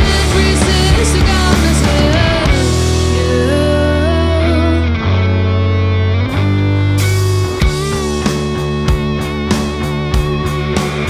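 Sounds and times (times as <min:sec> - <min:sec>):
woman singing: 0:00.0 - 0:05.0
drums: 0:00.0 - 0:05.3, 0:06.2 - 0:11.0
bass guitar: 0:00.0 - 0:11.0
distorted electric guitar: 0:00.0 - 0:11.0.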